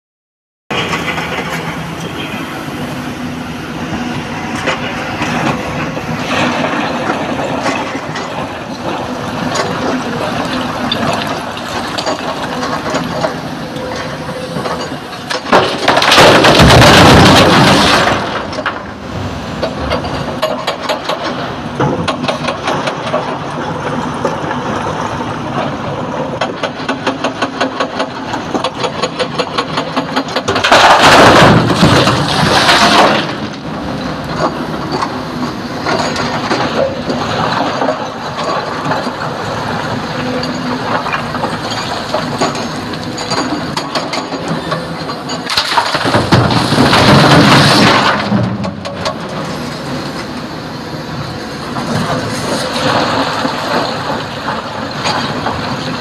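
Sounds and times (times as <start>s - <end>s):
excavator diesel engine under load: 0.7s - 56.0s
rock crashing into steel truck bed: 15.4s - 18.9s, 30.6s - 33.5s, 45.4s - 48.8s.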